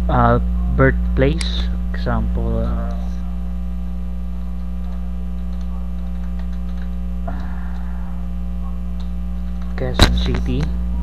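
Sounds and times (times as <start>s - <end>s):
electrical mains hum: 0.0s - 11.0s
computer keyboard clicks: 4.5s - 7.9s, 9.0s - 10.7s.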